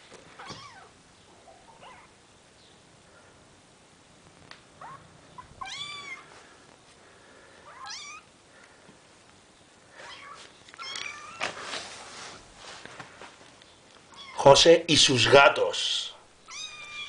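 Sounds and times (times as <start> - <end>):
rustle: 4.2 - 14.4
kittens mewing: 4.8 - 6.3.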